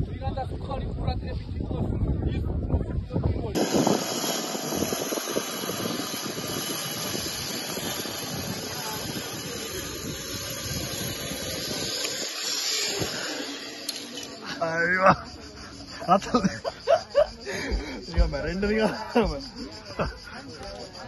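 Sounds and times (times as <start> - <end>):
wind rumbling on microphone: 0.0 - 13.8
zipline trolley hissing on cable: 3.6 - 21.0.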